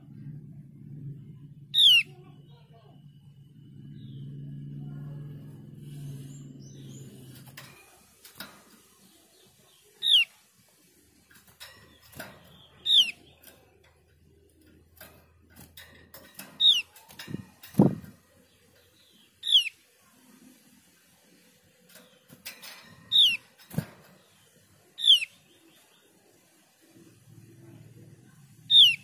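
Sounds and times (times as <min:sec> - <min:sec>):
low hum: 0:00.0 - 0:09.2
light clicks from cage: 0:06.7 - 0:09.2, 0:11.2 - 0:19.6, 0:21.2 - 0:25.2
bird fluttering with thump: 0:15.0 - 0:18.2, 0:21.9 - 0:24.3.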